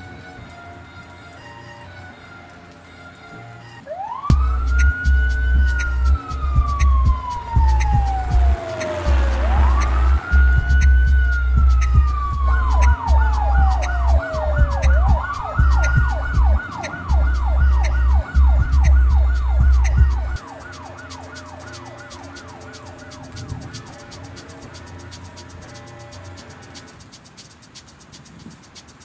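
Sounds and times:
electronic siren wailing and yelping: 0:03.9 - 0:24.4
booming bass beat: 0:04.3 - 0:27.2.

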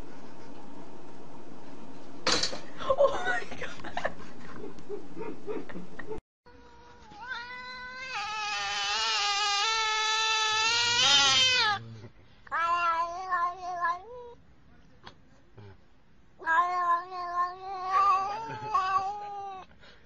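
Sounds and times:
cat meowing: 0:07.0 - 0:11.8, 0:12.5 - 0:14.4, 0:16.4 - 0:19.6.

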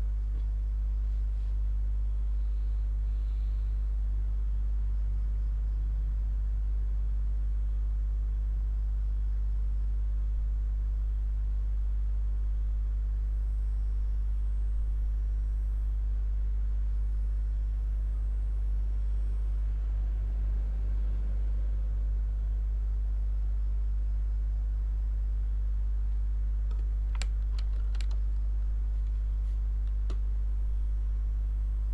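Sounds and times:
steady low hum: 0:00.0 - 0:31.9
sharp clicks: 0:26.7 - 0:28.4.

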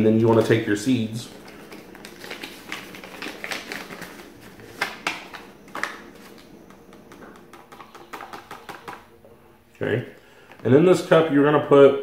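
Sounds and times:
paper packet crinkling: 0:00.0 - 0:09.0.

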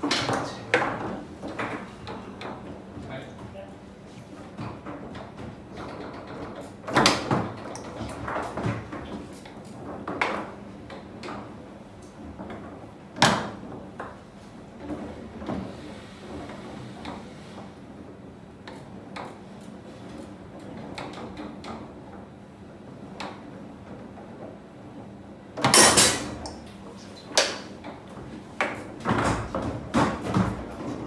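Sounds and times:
foosball rods clacking: 0:04.6 - 0:15.4, 0:25.6 - 0:31.0.

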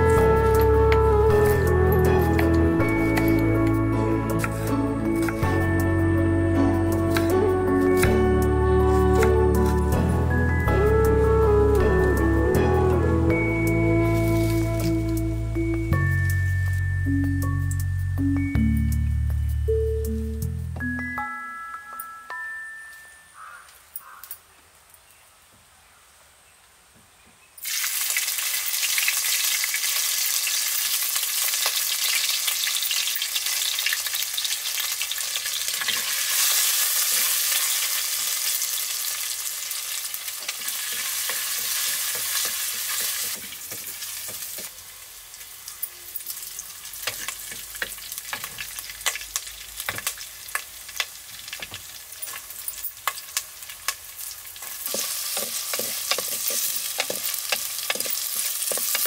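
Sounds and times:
oil sizzling in pot: 0:00.0 - 0:18.0, 0:27.6 - 0:59.0
wooden spatula stirring pot: 0:54.8 - 0:59.0.

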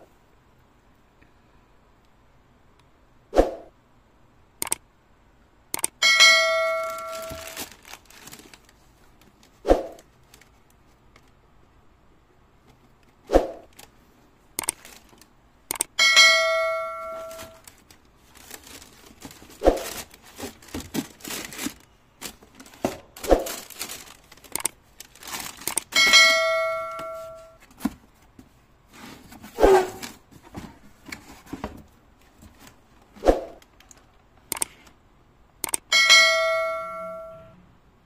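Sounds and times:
tissue paper crinkling: 0:06.7 - 0:10.7, 0:14.8 - 0:15.3, 0:17.2 - 0:26.0
bell-like ding chime: 0:16.0 - 0:17.5, 0:35.9 - 0:37.6
cardboard box being handled: 0:17.2 - 0:24.2, 0:27.2 - 0:32.8.

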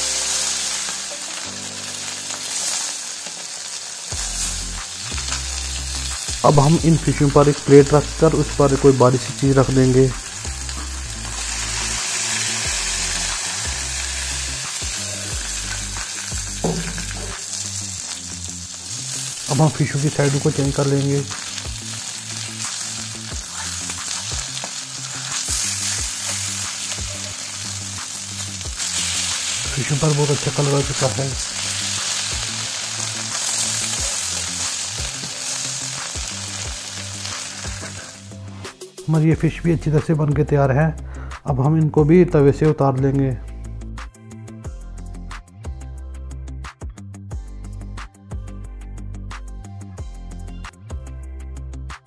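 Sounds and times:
fish sizzling in oil: 0:00.0 - 0:39.0
slow background music: 0:00.0 - 0:52.0.

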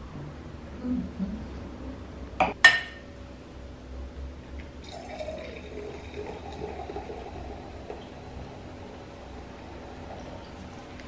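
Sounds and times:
liquid fizzing: 0:04.8 - 0:11.0.

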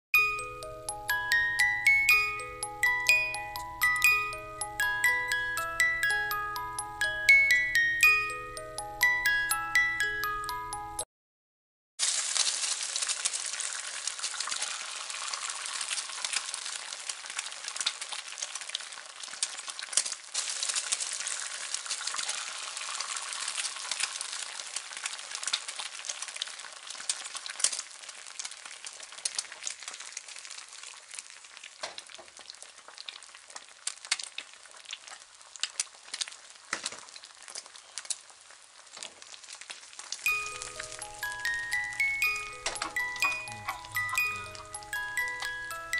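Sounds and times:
fish sizzling in hot oil: 0:12.0 - 0:42.5.

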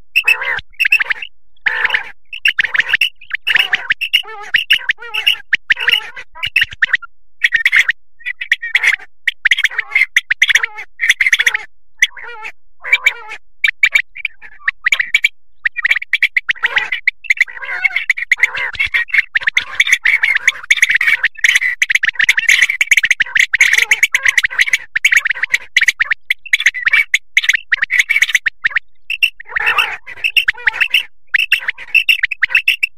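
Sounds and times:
quail calling: 0:00.1 - 0:32.9.

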